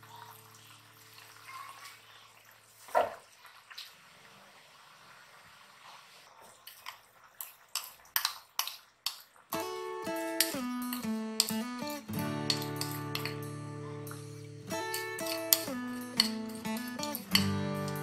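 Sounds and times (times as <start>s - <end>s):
faint liquid noise: 0.0s - 10.1s
spoon scraping ceramic bowl: 12.4s - 13.4s, 14.8s - 18.0s.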